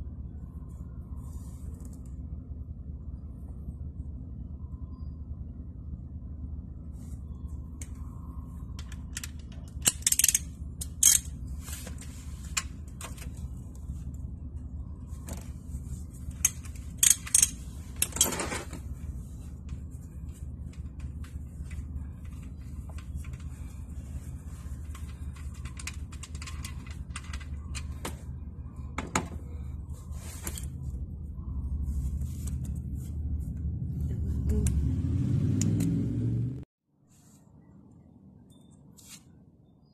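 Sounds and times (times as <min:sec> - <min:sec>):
steady low hum: 0:00.0 - 0:39.9
metal ratchet clinking and clicking: 0:08.8 - 0:11.4, 0:16.4 - 0:18.4.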